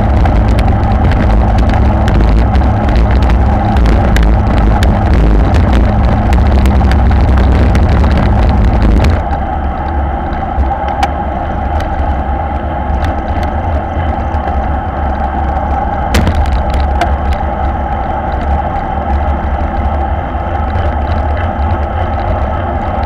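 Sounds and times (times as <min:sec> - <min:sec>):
bike tyres rattling on brick: 0:00.0 - 0:23.0
tyres humming on asphalt: 0:00.0 - 0:23.0
wind buffeting microphone: 0:00.0 - 0:23.0.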